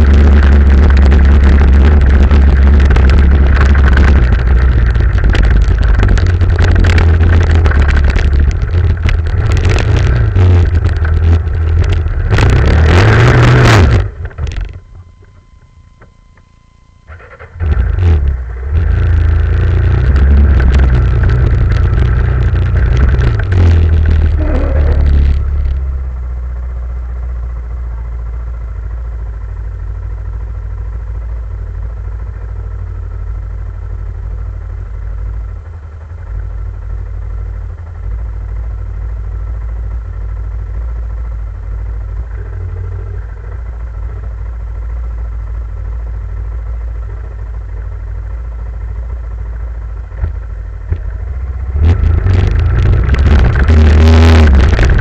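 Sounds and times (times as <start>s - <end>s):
small vehicle engine revving: 0.0s - 14.7s, 17.1s - 26.3s, 50.1s - 55.0s.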